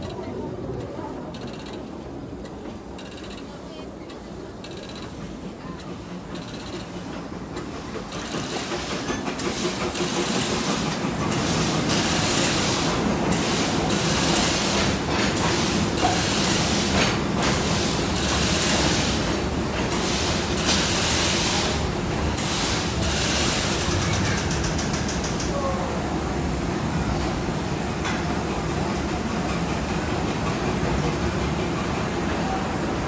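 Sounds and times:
train wheels clattering on rails: 0.0 - 25.8, 27.2 - 33.0
steam hiss: 6.0 - 25.6.

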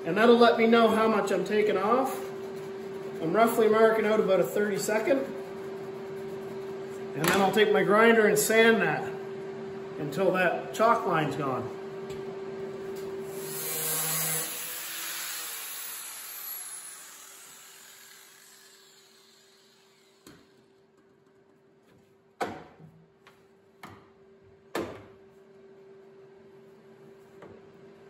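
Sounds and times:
grinder sanding steel: 13.3 - 20.2
grinder spinning down whine: 13.3 - 20.6.

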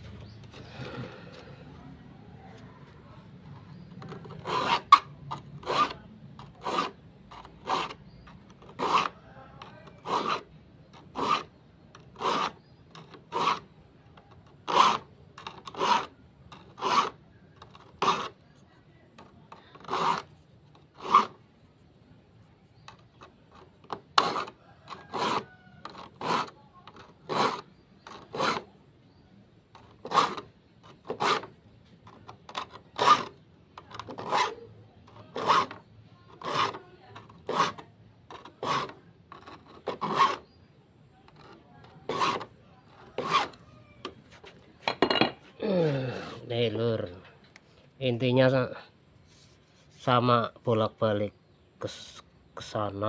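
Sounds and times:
file rasping on saw teeth: 4.0 - 13.8, 14.4 - 18.4, 19.5 - 21.4, 22.9 - 28.7, 29.8 - 40.6, 41.3 - 43.7.

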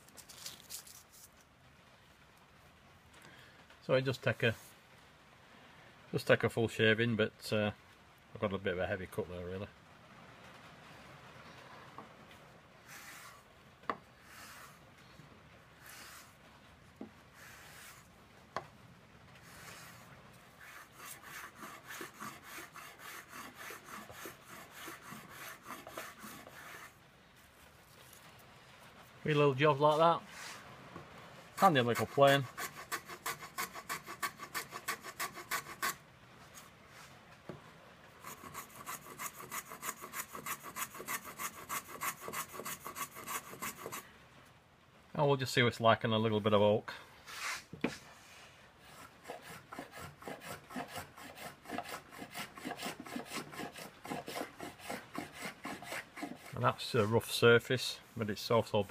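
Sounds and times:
hand plane shaving wood: 12.9 - 13.4, 14.2 - 14.8, 15.8 - 16.3, 17.4 - 18.1, 19.4 - 26.9, 31.6 - 36.0, 38.2 - 44.0, 48.8 - 56.8.

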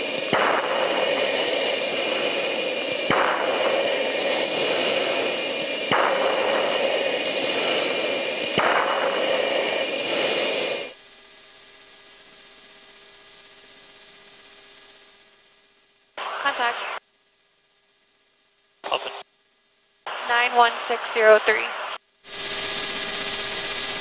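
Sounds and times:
aircraft cabin drone: 0.0 - 11.0
jet engine and airflow roar: 0.0 - 11.0
whining tones: 0.0 - 11.0.

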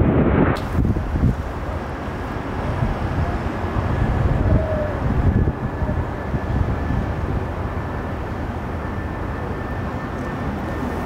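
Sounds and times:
faint high engine whine: 0.0 - 11.0
jet engines rumbling: 0.0 - 11.0
wind buffeting microphone: 0.0 - 11.0.

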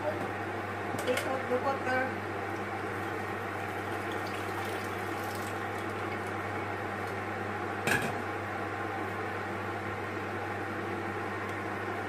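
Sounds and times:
water pouring from pot: 3.0 - 6.0.

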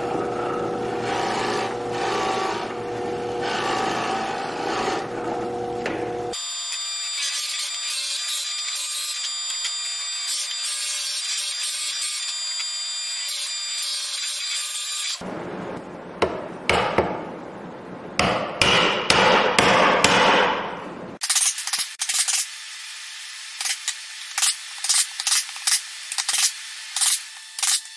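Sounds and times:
drill press whining: 0.0 - 6.4.

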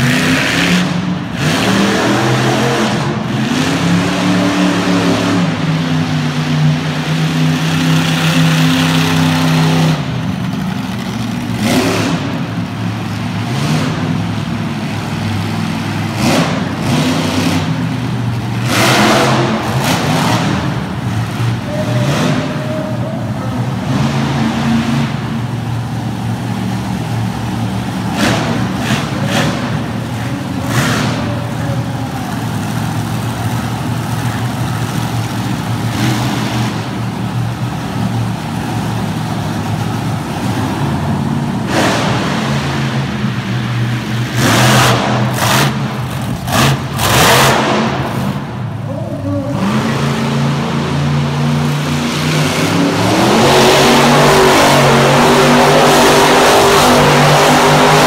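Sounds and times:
monster truck engine rumbling: 0.0 - 58.0.

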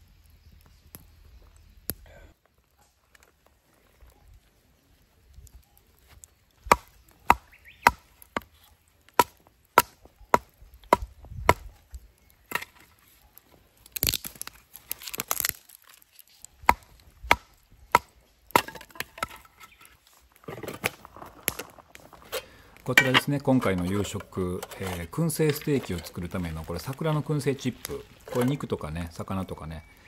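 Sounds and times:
wood cracking and splintering: 6.1 - 28.9
metal tin handled: 22.2 - 26.3.

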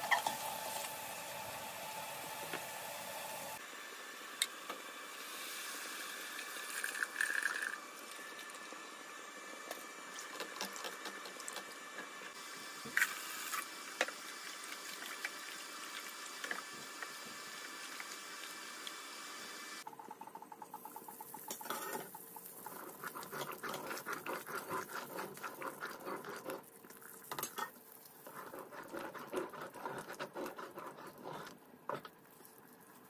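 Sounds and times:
spatula stirring curry in pot: 22.6 - 26.6, 28.2 - 32.1.

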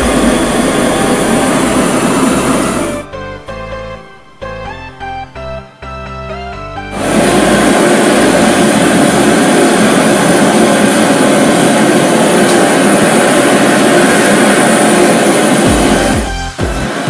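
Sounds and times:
blowtorches roaring: 0.0 - 3.3, 6.9 - 17.0.

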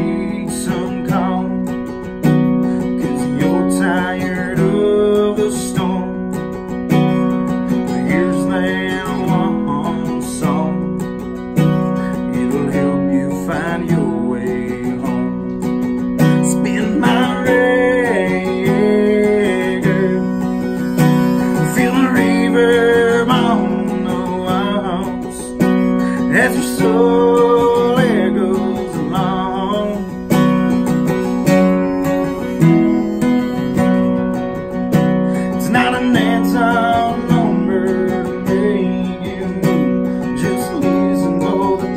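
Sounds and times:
strummed acoustic guitars: 0.0 - 41.9
harmonica playing: 14.1 - 41.9.

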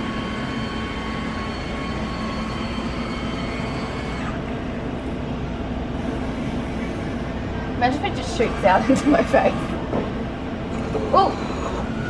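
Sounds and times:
thin high whine: 0.0 - 4.9
vending machine mechanism humming: 0.0 - 12.0.

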